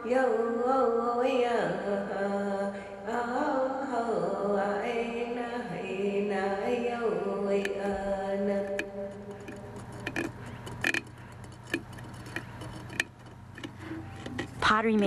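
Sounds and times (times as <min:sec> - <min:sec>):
low steady hum: 0:00.0 - 0:15.0
sharp clicks and cracks: 0:08.6 - 0:15.0.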